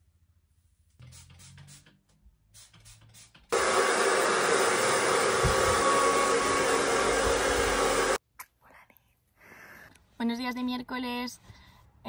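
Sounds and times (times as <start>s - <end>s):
hair dryer running: 3.5s - 8.2s.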